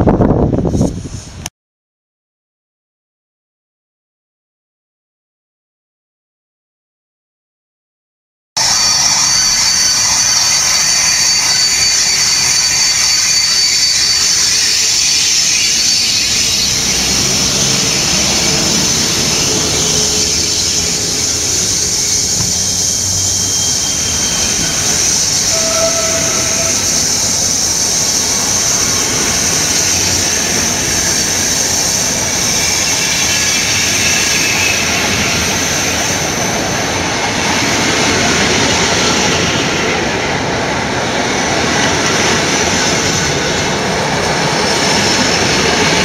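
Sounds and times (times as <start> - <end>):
thin high tone: 8.6 - 35.0
high hiss and squeal: 8.6 - 37.8
electric train passing: 8.6 - 46.0.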